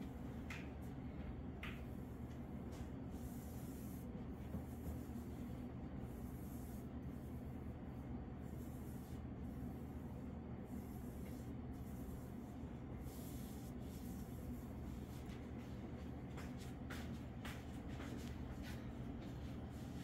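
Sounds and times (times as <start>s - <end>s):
low room hum: 0.0s - 20.0s
ink brush sweeping across paper: 1.8s - 20.0s.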